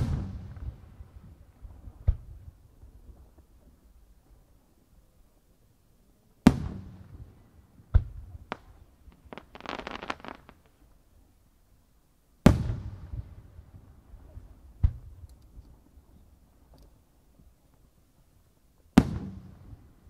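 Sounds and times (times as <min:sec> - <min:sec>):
firework pops: 0:07.9 - 0:10.8
firework shells bursting: 0:08.0 - 0:10.8.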